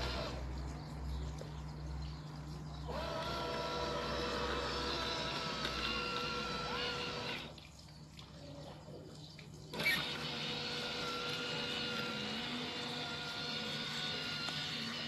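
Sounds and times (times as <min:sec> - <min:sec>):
electric motors whining: 0:00.0 - 0:00.5, 0:02.8 - 0:07.6, 0:09.7 - 0:15.0
robotic mower click: 0:02.9 - 0:07.6, 0:09.7 - 0:15.0.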